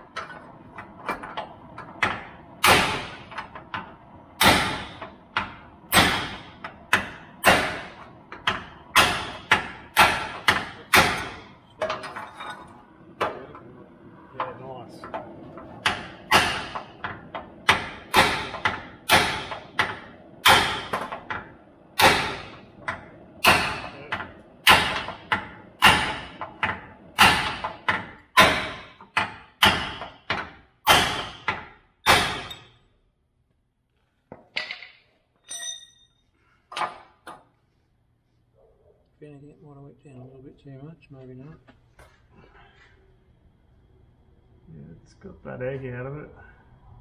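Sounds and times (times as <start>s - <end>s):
hammer striking steel: 2.1s - 3.4s, 4.4s - 12.0s, 15.8s - 32.8s
light metallic clinks: 35.4s - 36.3s.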